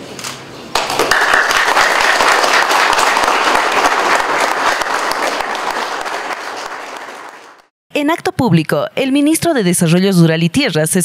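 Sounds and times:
audience applauding: 0.8 - 7.7.

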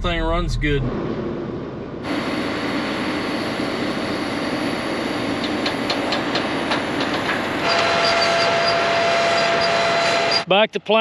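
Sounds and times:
high whine: 0.0 - 10.6
tractor engine rumbling: 0.0 - 11.0.

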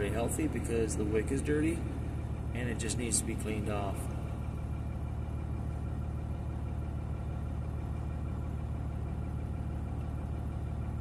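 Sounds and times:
low mechanical hum: 0.0 - 11.0.

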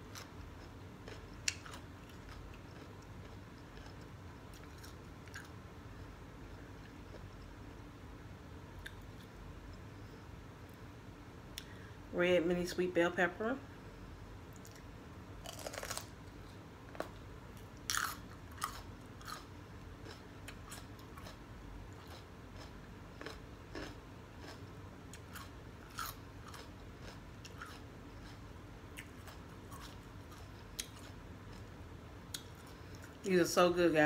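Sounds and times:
crunchy bites of bell pepper: 15.4 - 16.2, 17.9 - 21.4.

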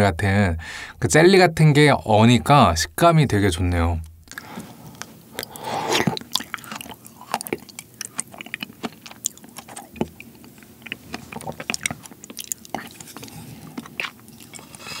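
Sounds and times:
wet chewing clicks and smacks: 4.1 - 15.0
wet slurp: 5.3 - 15.0.

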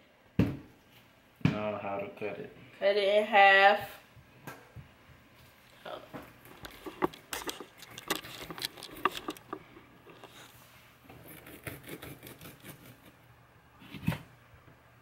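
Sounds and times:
knife cutting on cutting board: 11.2 - 13.2.

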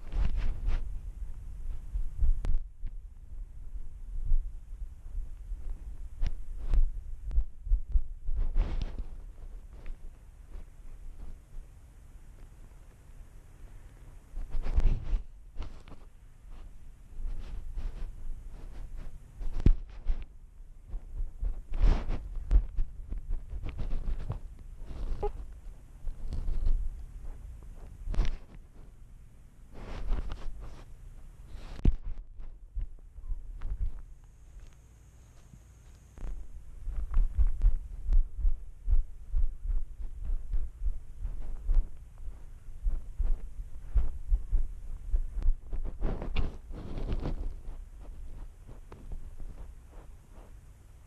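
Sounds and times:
grass brushing against camera: 0.0 - 29.0, 29.6 - 51.0
low thumps: 36.2 - 48.4.

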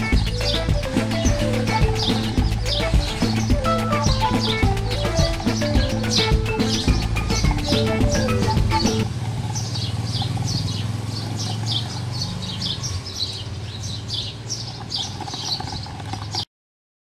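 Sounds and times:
background music: 0.0 - 9.1
bird chirping: 0.0 - 16.4.

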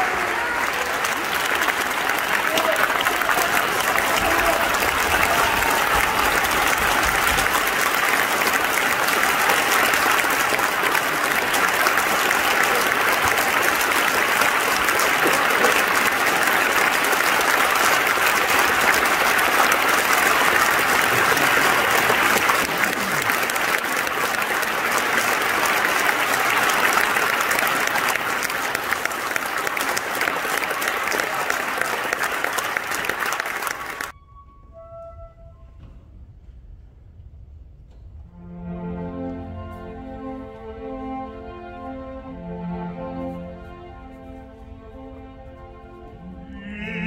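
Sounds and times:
audience applauding: 0.0 - 34.1, 46.3 - 47.0.

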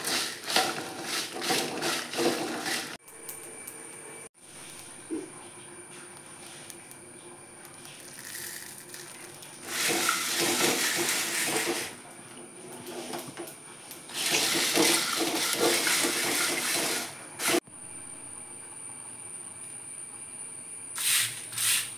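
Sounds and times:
hiss: 21.0 - 21.9.

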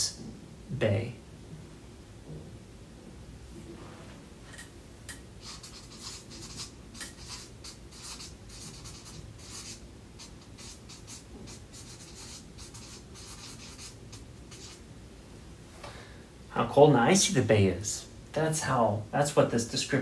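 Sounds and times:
low room hum: 0.0 - 20.0
pen scratching while writing: 5.4 - 14.8.

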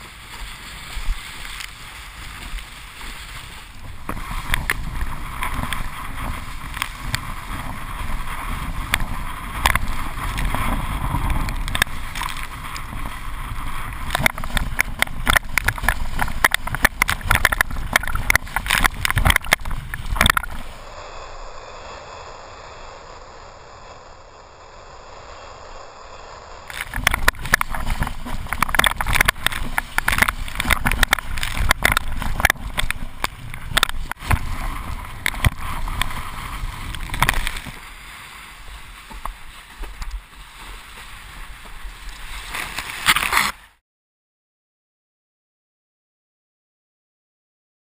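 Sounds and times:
board hull slapping on water: 0.0 - 20.7, 26.7 - 43.6
rush of spray and wind: 0.0 - 43.8.

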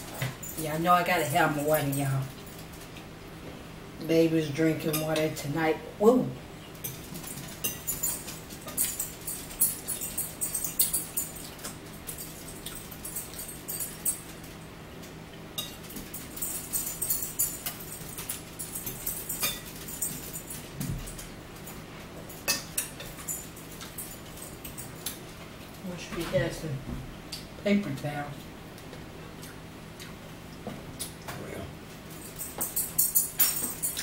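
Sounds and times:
forks clicking and scraping on plates: 6.8 - 14.6, 15.6 - 25.3, 32.1 - 34.0.

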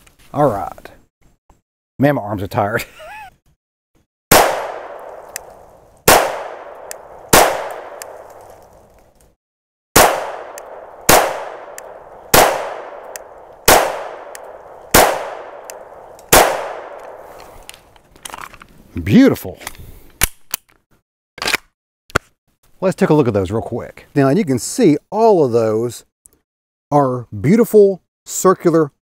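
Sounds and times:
pistol shots with echo: 4.3 - 8.5, 10.0 - 17.3.

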